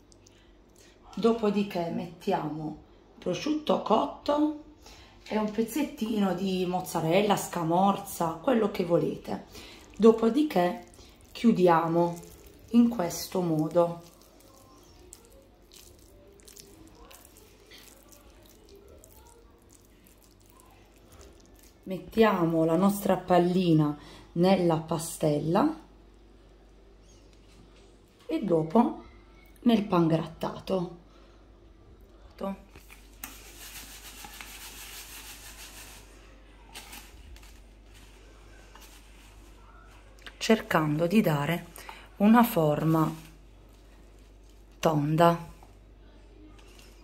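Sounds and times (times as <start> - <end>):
wet squishing of rice in hands: 0.0 - 1.1, 6.0 - 23.5, 32.0 - 47.0
breadcrumbs rustling: 5.4 - 23.5, 32.7 - 47.0.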